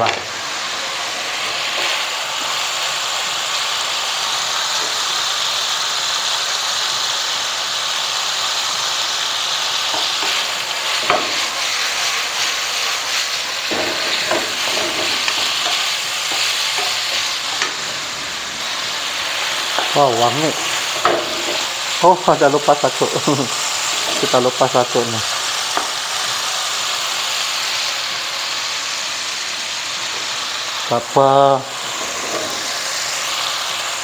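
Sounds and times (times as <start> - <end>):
food sizzling in hot oil: 0.0 - 34.0
spatula knocking and scraping pan: 9.9 - 11.8, 13.6 - 18.0, 19.5 - 21.8, 32.0 - 32.8.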